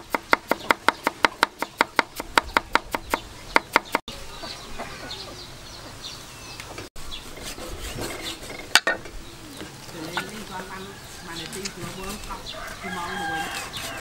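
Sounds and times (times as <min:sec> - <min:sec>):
chickens clucking: 0:03.0 - 0:14.0.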